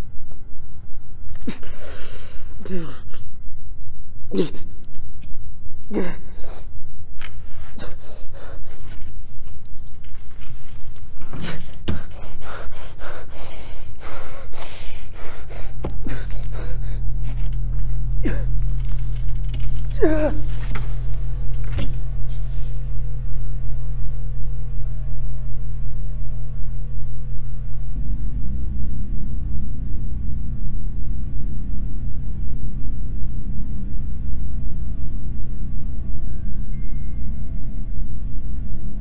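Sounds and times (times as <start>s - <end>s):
steady low hum: 0.0s - 39.0s
throbbing low drone: 0.0s - 39.0s
man gasping and panting: 7.6s - 9.0s, 11.2s - 17.2s.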